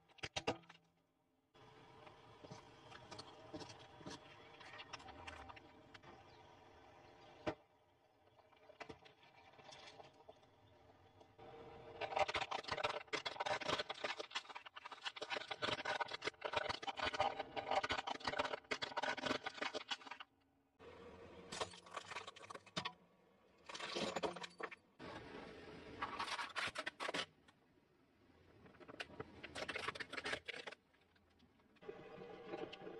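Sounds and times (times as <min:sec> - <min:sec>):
plastic toy cars cracking: 0:11.9 - 0:20.3, 0:28.7 - 0:31.5.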